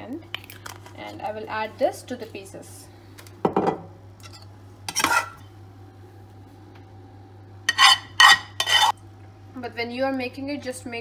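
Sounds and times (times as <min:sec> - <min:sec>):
metal spoon scraping a pan: 0:04.2 - 0:05.4, 0:07.7 - 0:09.0.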